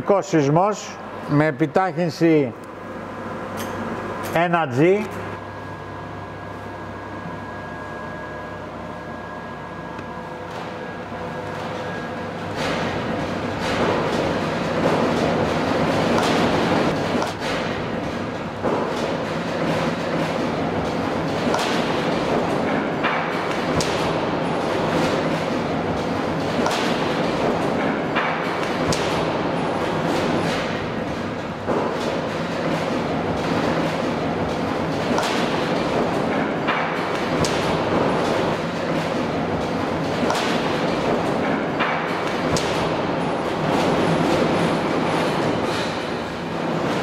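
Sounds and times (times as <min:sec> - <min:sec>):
shake table heavy rumble and rattle: 0:10.4 - 0:47.0.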